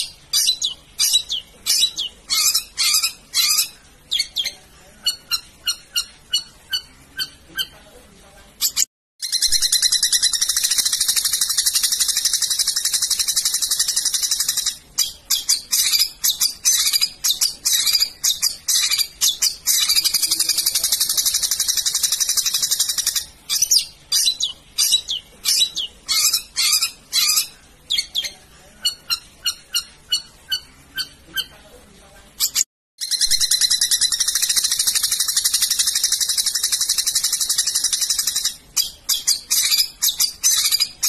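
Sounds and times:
bird rattling trill: 8.6 - 25.1, 32.5 - 41.0
sharp bird notes: 32.5 - 41.0.

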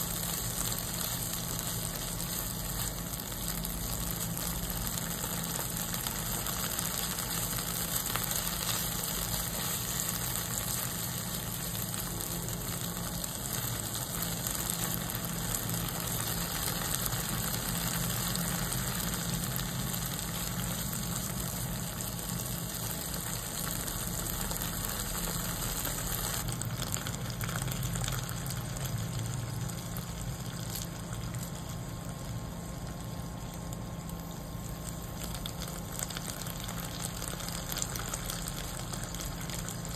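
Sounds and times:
curry paste sizzling in oil: 0.0 - 39.9
steady low hum: 0.0 - 39.9.

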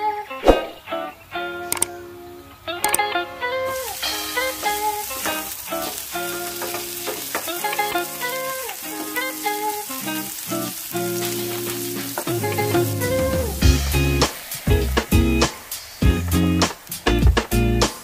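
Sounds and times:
background music with held notes: 0.0 - 18.0
cheese sizzling in hot oil: 3.7 - 17.3
spatula stirring in a pan: 3.8 - 13.3.

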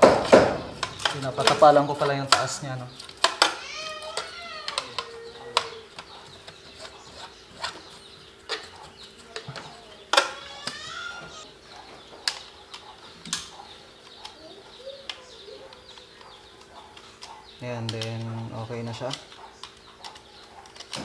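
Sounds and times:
circuit breakers clicking: 15.0 - 21.0.

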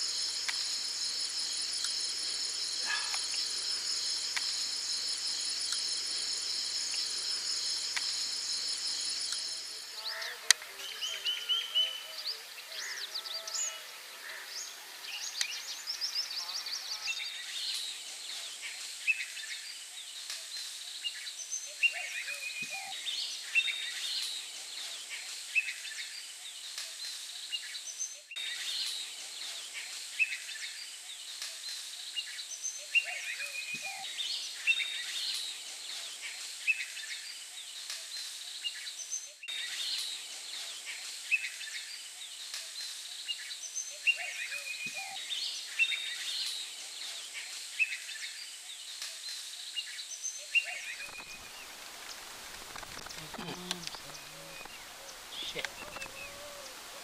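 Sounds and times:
high insect-like whine: 0.0 - 11.8, 28.4 - 30.6, 33.3 - 37.1, 50.9 - 57.0
small birds chirping: 0.0 - 57.0.

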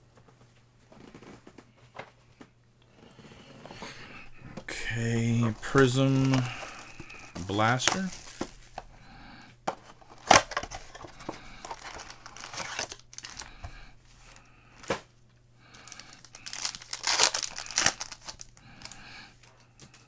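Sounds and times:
foil wrapper tearing and crinkling: 4.9 - 8.7, 10.1 - 13.6, 15.8 - 19.0.

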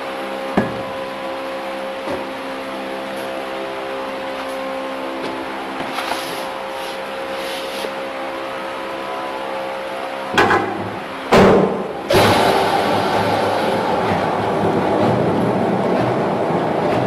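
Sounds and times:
loud bangs: 10.4 - 17.0
cutting machine humming: 12.0 - 17.0.

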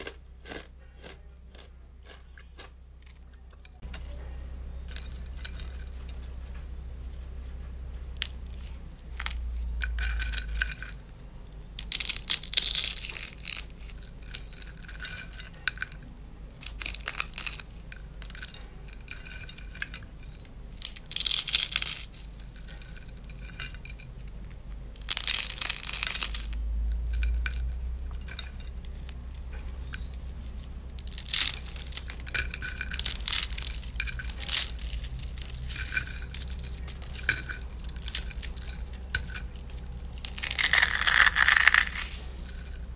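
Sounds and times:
crispy snacks crunching: 0.0 - 42.9
pieces clinking against bowl: 11.8 - 42.9.

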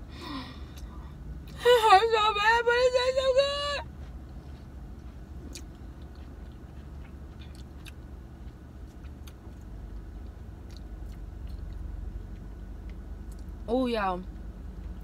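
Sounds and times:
people chewing food: 3.9 - 13.5.

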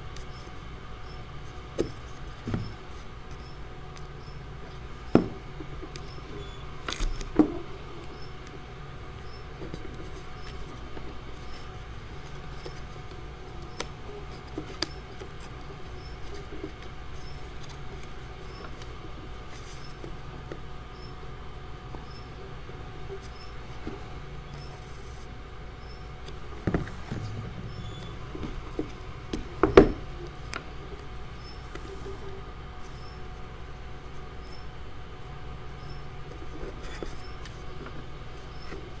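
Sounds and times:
steady background hum: 0.0 - 39.0
paper rustling: 9.5 - 20.2.

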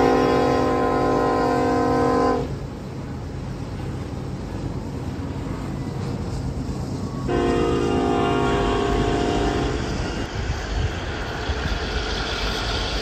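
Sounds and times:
locomotive air horn chord: 0.0 - 2.6, 7.3 - 10.0
freight train rumbling past: 0.0 - 13.0.

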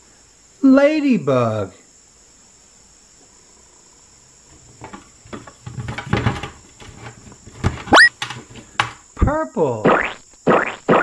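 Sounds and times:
plastic toys rustling and clicking: 4.5 - 9.1
short rising squeak: 7.9 - 8.1.

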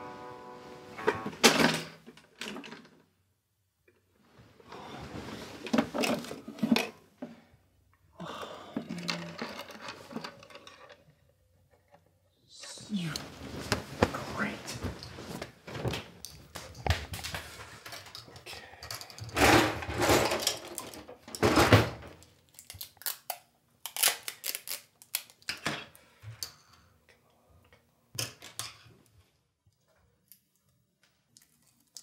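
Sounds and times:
rustling: 12.8 - 17.9.

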